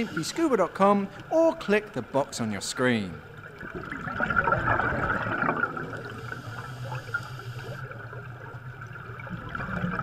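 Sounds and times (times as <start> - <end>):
underwater bubbling: 3.2 - 10.0.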